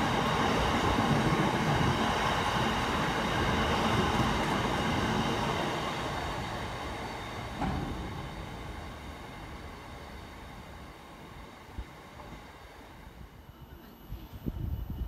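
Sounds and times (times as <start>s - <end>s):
freight train wheels rumbling: 0.0s - 15.0s.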